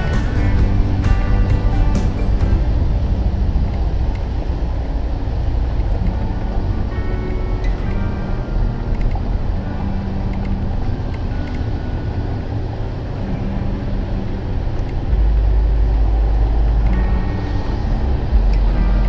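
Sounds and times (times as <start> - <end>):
engine and tyre rumble: 0.0 - 19.0.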